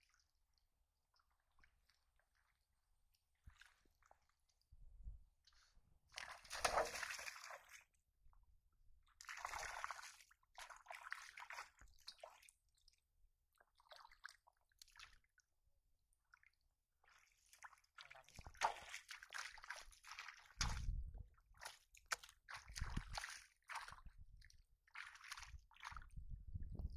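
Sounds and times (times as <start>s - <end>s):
shallow water splashing: 6.1s - 7.9s, 9.2s - 12.5s, 17.1s - 24.2s, 24.9s - 26.1s.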